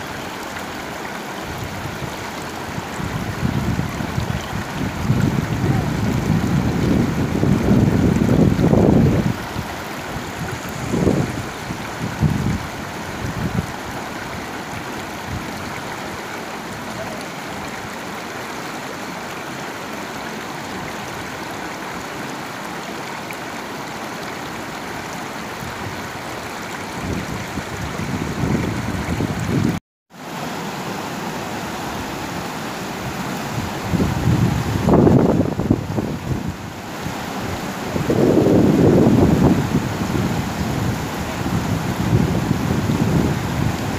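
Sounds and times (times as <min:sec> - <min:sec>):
river rapids rushing: 0:00.0 - 0:43.9
wind buffeting microphone: 0:02.7 - 0:14.4, 0:26.9 - 0:29.8, 0:33.4 - 0:36.7, 0:37.4 - 0:43.9.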